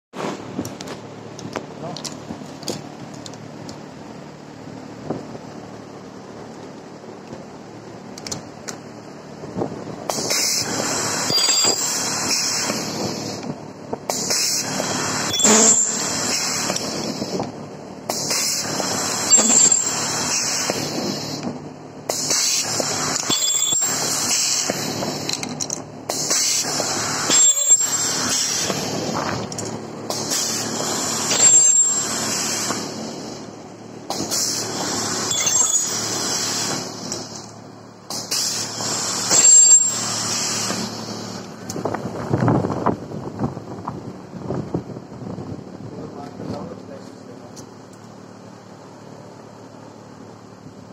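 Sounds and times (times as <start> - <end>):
steady machine noise: 0.3 - 44.4
high whine: 8.9 - 13.6, 14.2 - 43.5
air hiss bursts: 10.1 - 13.4, 14.1 - 17.4, 18.1 - 21.4, 22.1 - 25.3, 34.1 - 35.3, 38.1 - 41.4.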